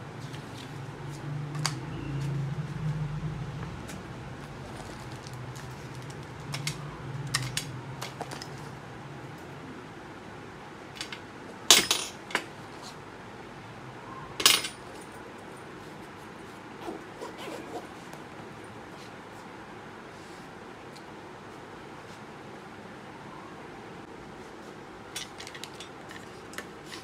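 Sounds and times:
small clicks and rustles: 4.5s - 8.8s.

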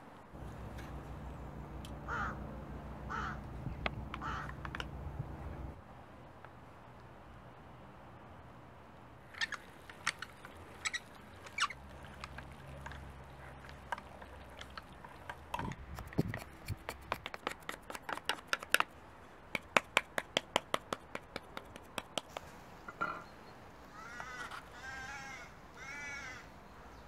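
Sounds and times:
low hum: 0.4s - 5.8s.

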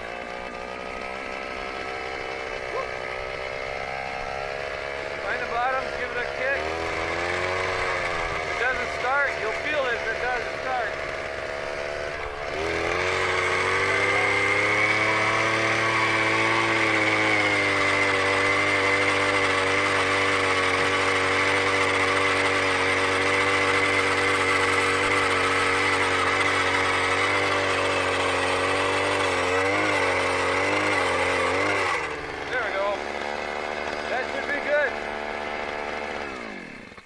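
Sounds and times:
ice auger engine revving: 0.0s - 37.0s.

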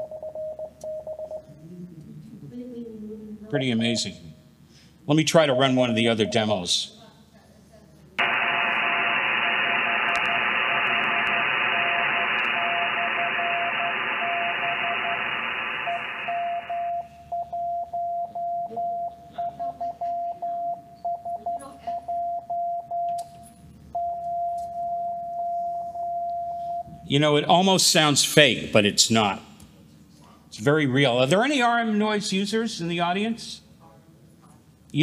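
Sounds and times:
radio band hiss: 8.2s - 17.0s
morse code tone: 8.2s - 19.0s.

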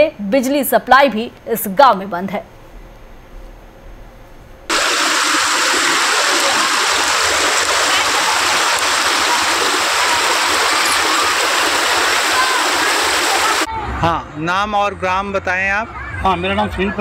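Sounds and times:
floodwater rushing: 4.7s - 13.7s.

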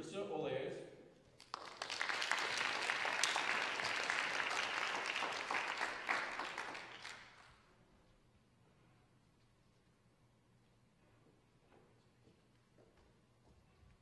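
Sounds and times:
audience applauding: 1.4s - 7.7s.

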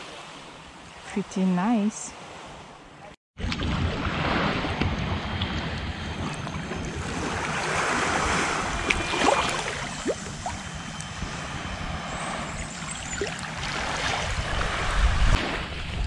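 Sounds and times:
small waves lapping on shore: 0.0s - 16.0s
wind buffeting microphone: 3.6s - 16.0s.

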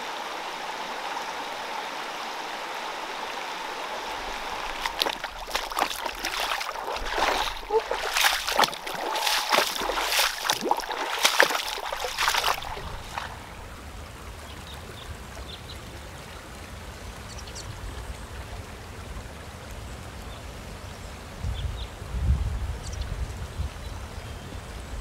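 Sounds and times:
stream splashing over stones: 0.0s - 17.1s.

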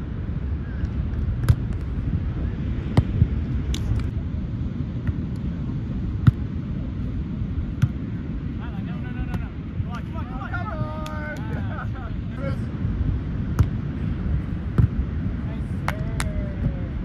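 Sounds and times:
wind noise on microphone: 0.0s - 17.0s
hands slapping volleyball: 15.8s - 16.4s.

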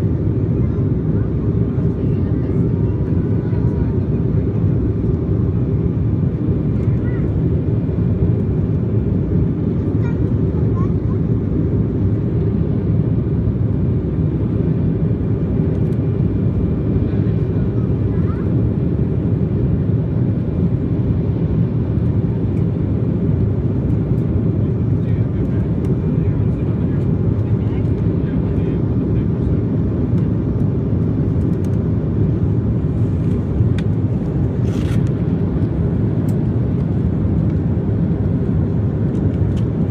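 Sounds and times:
jet engines rumbling in cabin: 0.0s - 39.9s.

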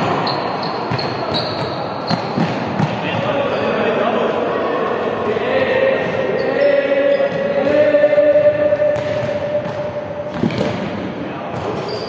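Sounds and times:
balls bouncing on hall floor: 0.0s - 3.4s, 7.2s - 12.0s.

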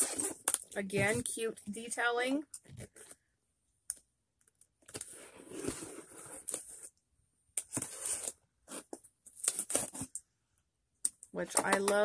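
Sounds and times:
cardboard packaging rustling: 7.7s - 10.2s.

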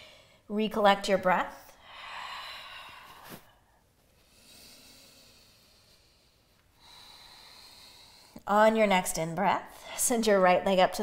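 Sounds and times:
woman breathing slowly: 0.0s - 0.5s, 1.7s - 8.5s.

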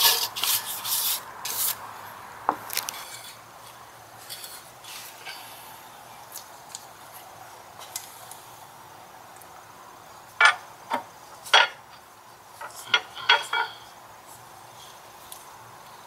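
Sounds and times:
metal parts clinking: 12.6s - 13.8s.

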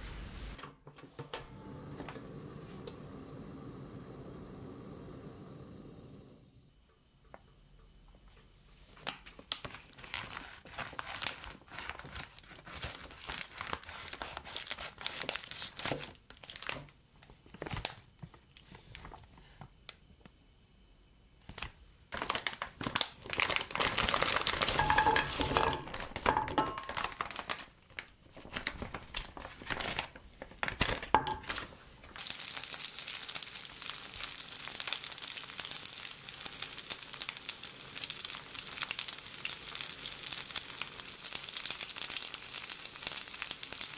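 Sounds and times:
plastic bag crinkling: 9.0s - 19.4s, 21.5s - 43.9s
dumplings sizzling in oil: 22.8s - 27.7s, 30.8s - 43.9s
dumplings clattering into frying pan: 24.4s - 27.4s, 30.8s - 31.7s.

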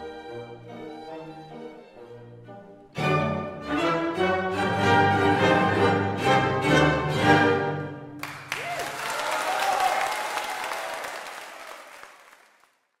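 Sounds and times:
orchestra playing: 0.0s - 8.3s
audience applause: 8.2s - 13.0s.

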